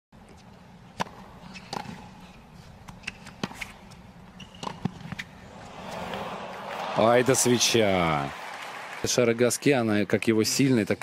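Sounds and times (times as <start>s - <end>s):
stadium crowd hum: 0.3s - 10.6s
tennis ball bouncing: 0.9s - 2.2s, 2.8s - 6.6s
shoe squeaks: 1.4s - 2.0s, 2.9s - 5.3s.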